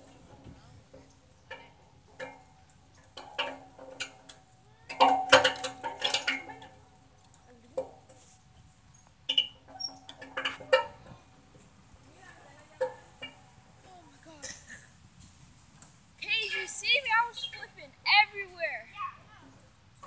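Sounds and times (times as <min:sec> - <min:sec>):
swing chains clinking and rattling: 0:00.9 - 0:11.4.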